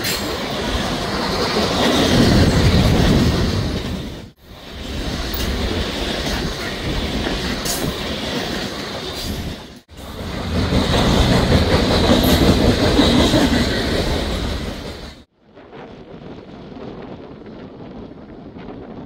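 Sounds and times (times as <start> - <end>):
freight train wheels clattering: 5.0 - 15.3.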